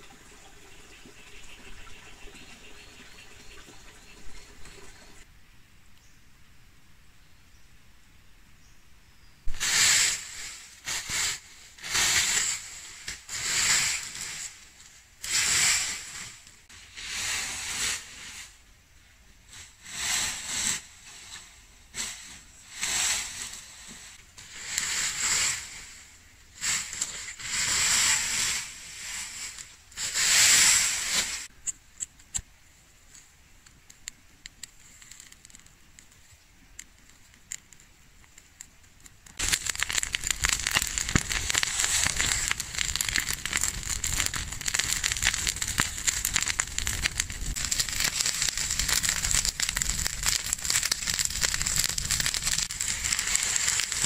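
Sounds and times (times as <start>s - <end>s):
dry brush swishing and rustling: 26.6s - 31.5s
dry stalks crackling: 33.0s - 54.0s.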